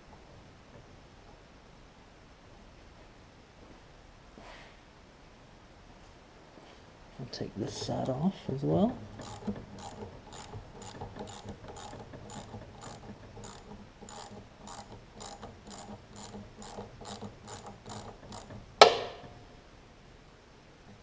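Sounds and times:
socket ratchet clicking: 9.2 - 18.9.

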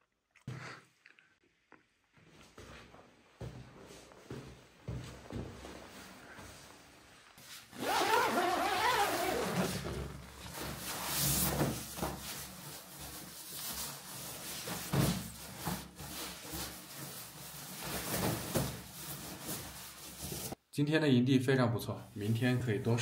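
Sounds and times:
fabric rustling and swishing: 3.9 - 20.6.

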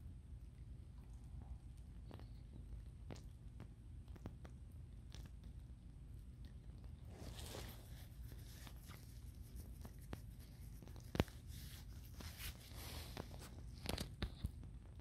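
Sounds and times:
low steady hum: 0.0 - 15.0
soft crackles and ticks: 0.0 - 15.0.

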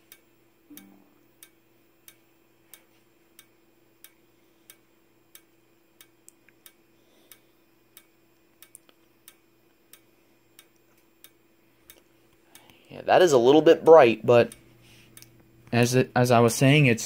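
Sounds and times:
strobe ticking: 0.0 - 15.8
faint capacitor whine: 0.0 - 17.0
small extra clicks: 8.0 - 12.8.

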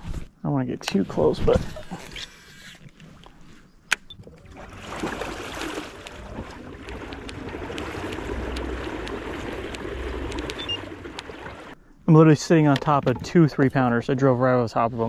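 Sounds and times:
water rushing along hull: 4.4 - 11.8.

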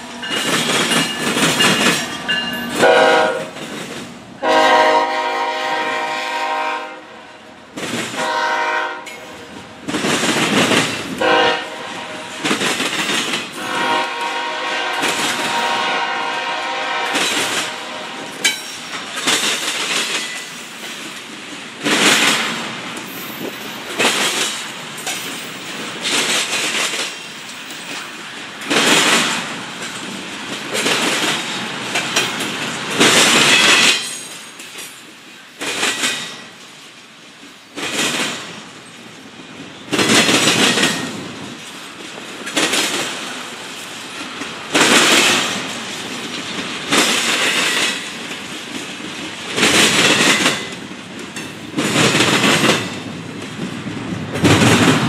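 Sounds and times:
train wheels clattering: 0.0 - 6.1, 7.7 - 55.0
freight train rolling rumble: 0.0 - 55.0
locomotive horn: 2.8 - 3.6, 4.4 - 7.4, 8.2 - 9.6, 11.2 - 12.5, 13.6 - 18.4.

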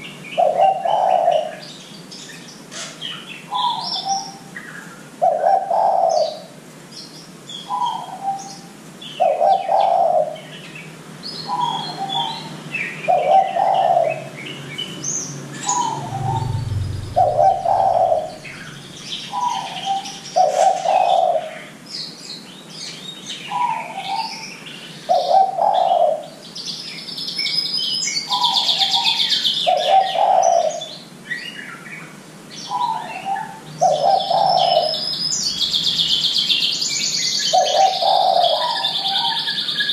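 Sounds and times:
small birds twittering: 0.0 - 39.9
dove cooing: 0.3 - 1.6, 5.2 - 6.5, 9.2 - 10.4, 11.5 - 14.3, 15.6 - 18.8, 19.4 - 21.7, 25.0 - 26.4, 28.3 - 30.9, 32.8 - 35.0, 37.5 - 39.4.

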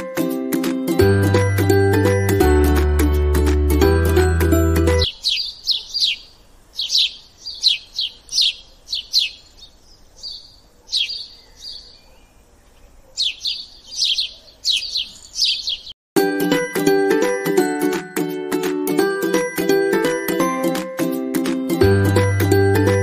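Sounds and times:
sparrow chirping: 4.9 - 16.0.

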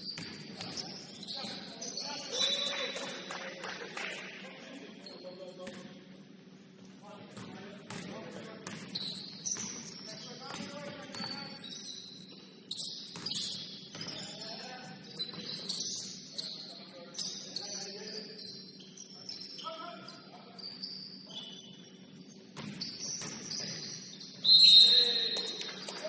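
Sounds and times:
sneakers squeaking on hardwood: 0.0 - 3.1, 8.7 - 17.8, 20.6 - 25.6.

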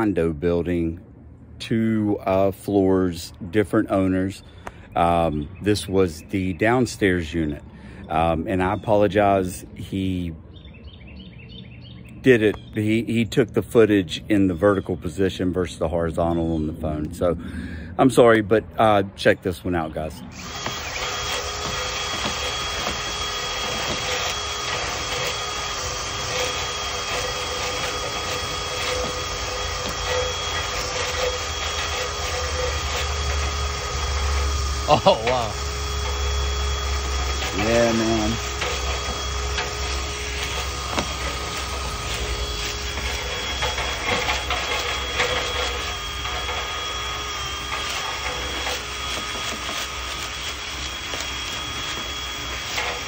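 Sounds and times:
cordless drill whining: 20.3 - 53.0
brush rushing in vent duct: 36.0 - 53.0.

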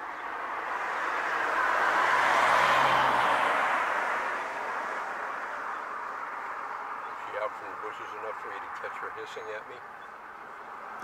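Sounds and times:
vehicle driving past: 0.5 - 7.0.

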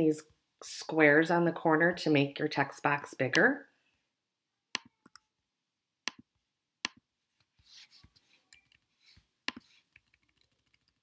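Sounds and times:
computer mouse clicking: 9.5 - 11.0.

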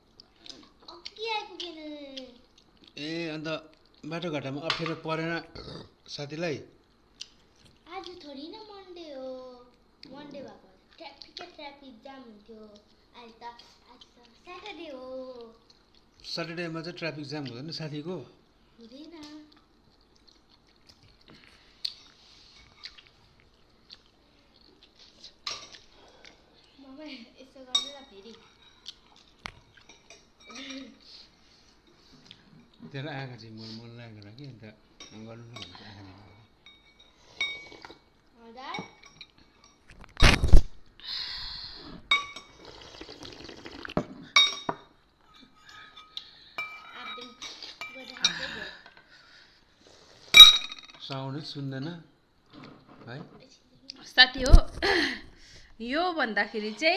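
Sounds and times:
soup slurping: 42.5 - 44.0
tableware clatter: 50.4 - 51.1.

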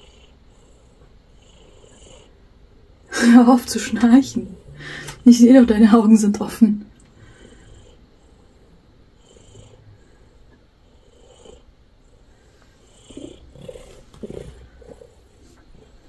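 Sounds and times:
snore-like breath: 0.0 - 2.4, 7.1 - 16.0
cat purring: 0.0 - 16.0.

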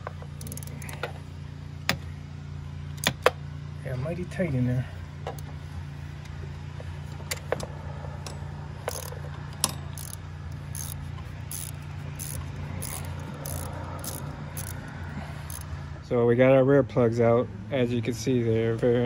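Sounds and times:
ratchet clicking: 0.0 - 1.2, 8.2 - 15.7
sharp metallic clicks: 8.2 - 15.7.

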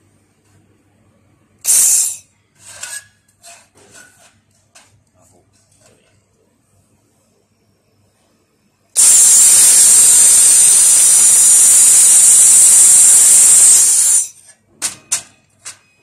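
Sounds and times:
loud hiss of shielding gas: 9.0 - 14.2.

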